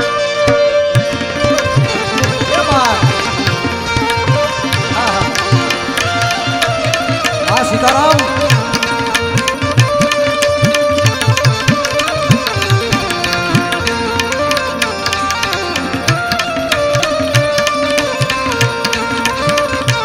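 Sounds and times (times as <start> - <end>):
melody with held notes: 0.0 - 20.0
tabla rhythm: 0.0 - 20.0.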